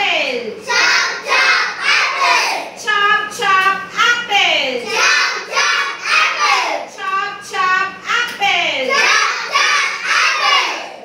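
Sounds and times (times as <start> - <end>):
children singing: 8.9 - 11.0.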